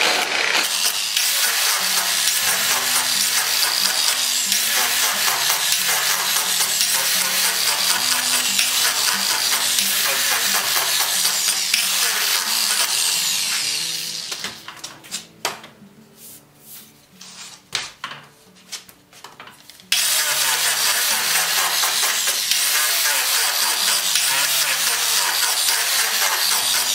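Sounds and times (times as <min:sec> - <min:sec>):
angle grinder grinding rubber: 0:00.0 - 0:14.7, 0:19.9 - 0:26.9
knocks and handling sounds: 0:14.3 - 0:19.9.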